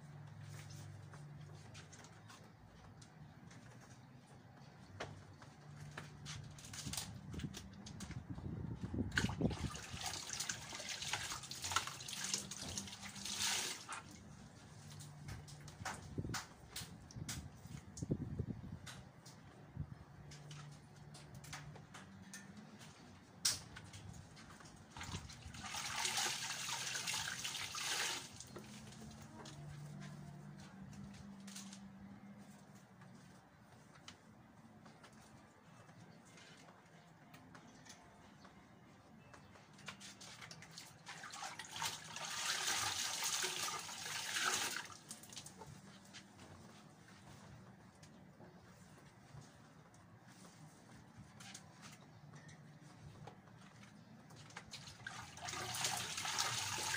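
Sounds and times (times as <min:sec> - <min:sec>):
water splashing from wet garment: 0:09.1 - 0:14.2, 0:25.0 - 0:29.1, 0:40.2 - 0:45.5, 0:54.7 - 0:56.9.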